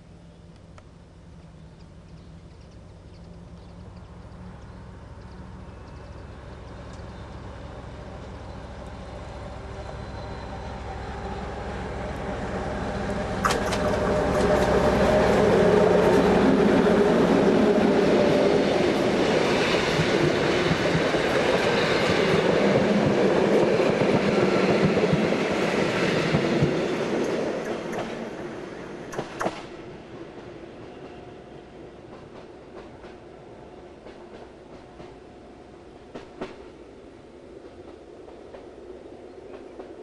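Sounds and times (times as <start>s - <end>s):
diesel locomotive engine: 0.0s - 40.0s
coach wheels rumbling on track: 3.7s - 31.2s
sharp click: 29.1s - 29.7s.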